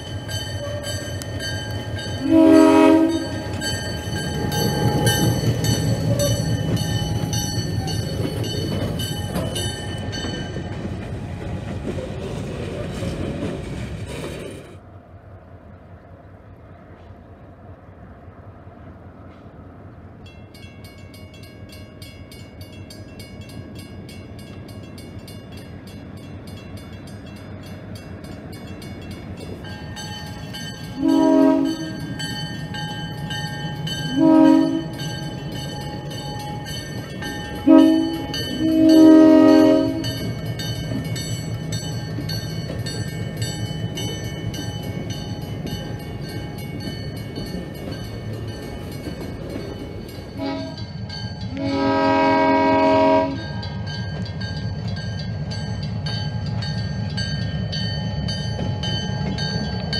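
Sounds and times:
crossing signal bells ringing: 0.0 - 11.8, 20.2 - 59.9
locomotive engine rumble: 0.0 - 59.9
locomotive horn: 2.2 - 3.7, 31.0 - 32.1, 34.1 - 35.2, 37.6 - 40.3, 50.4 - 50.9, 51.5 - 53.5.

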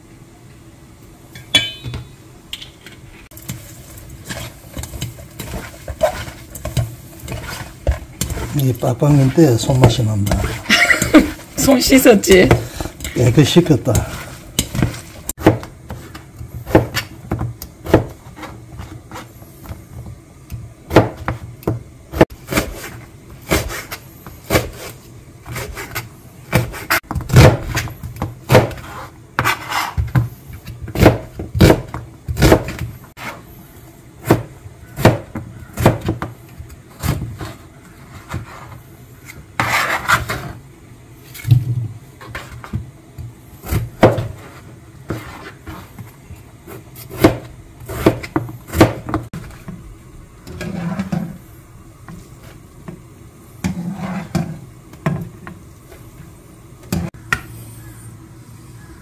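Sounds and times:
knife scraping across board: 4.2 - 9.4, 28.8 - 30.2, 32.4 - 33.5, 36.9 - 40.6, 43.6 - 46.1, 50.5 - 51.4, 53.6 - 54.6
knife chopping on plastic board: 13.9 - 19.2, 20.9 - 22.9, 25.5 - 30.2, 30.9 - 32.9, 34.2 - 36.3, 47.0 - 49.3.

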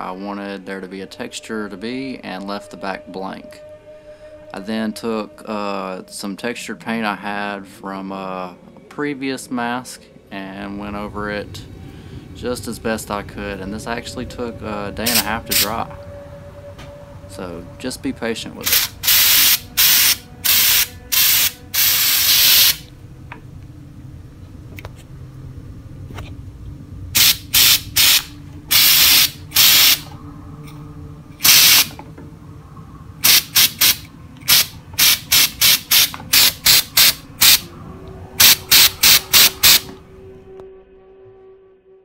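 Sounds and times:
spray paint can hissing: 18.7 - 22.8, 27.2 - 30.0, 31.4 - 31.9, 33.2 - 37.6, 38.4 - 39.9.

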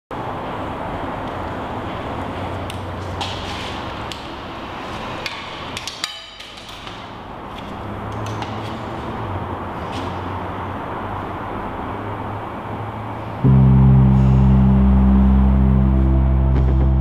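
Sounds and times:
low hum: 13.4 - 17.0.

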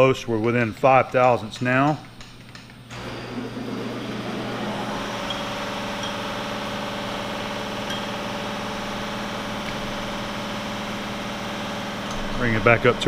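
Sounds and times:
machine motor humming: 2.8 - 13.0.

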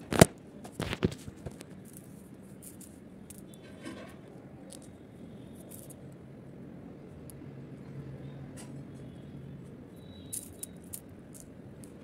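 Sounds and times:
shell pieces clicking: 10.3 - 12.0.

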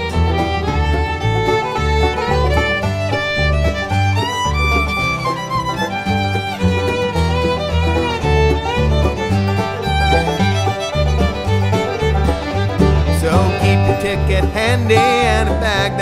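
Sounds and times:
fiddle melody: 0.0 - 16.0
steady bass beat: 0.0 - 16.0.

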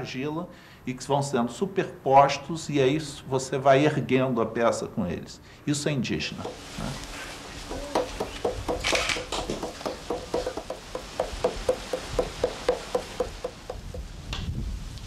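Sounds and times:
rhythmic tapping with ringing note: 6.3 - 14.0.

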